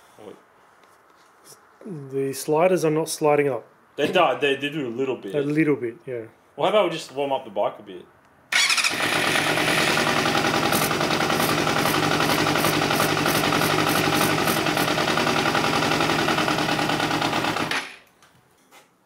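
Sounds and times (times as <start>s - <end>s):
motorcycle engine running: 8.6s - 17.8s.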